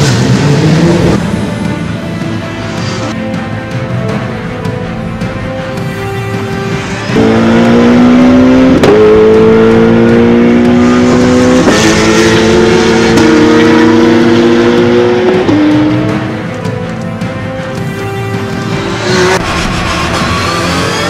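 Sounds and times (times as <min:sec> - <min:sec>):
race car engine accelerating: 0:00.0 - 0:01.4, 0:07.1 - 0:16.4, 0:18.8 - 0:21.0.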